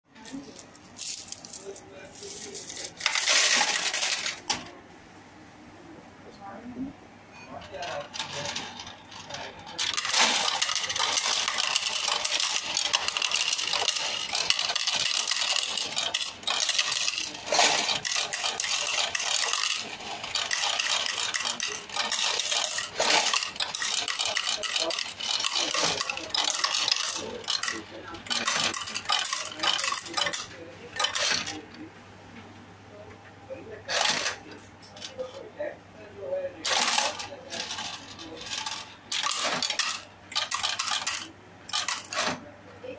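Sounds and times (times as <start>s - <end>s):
coin counting machine clattering: 0.4s - 4.6s, 7.6s - 31.7s, 33.9s - 34.4s, 36.6s - 42.4s.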